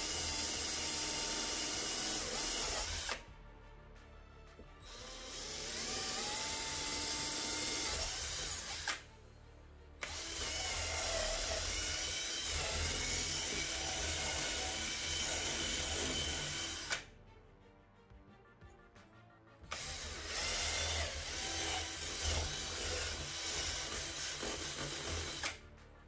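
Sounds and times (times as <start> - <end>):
cordless drill boring through wood: 0.0 - 3.2, 4.8 - 9.0, 10.0 - 17.1, 19.7 - 25.6.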